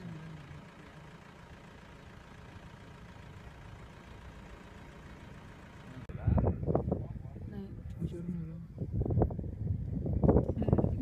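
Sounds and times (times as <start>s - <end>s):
vehicle engine rumbling: 0.0s - 11.0s.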